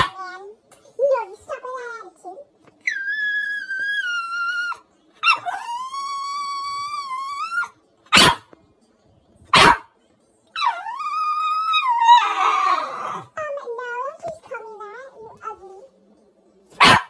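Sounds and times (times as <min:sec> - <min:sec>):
dog whining howls: 0:02.8 - 0:07.8, 0:10.6 - 0:13.3
dog barking: 0:08.1 - 0:08.5, 0:09.5 - 0:09.9, 0:16.8 - 0:17.0.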